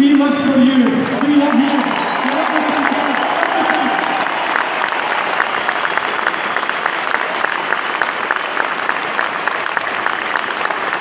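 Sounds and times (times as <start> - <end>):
crowd applauding: 0.0 - 11.0.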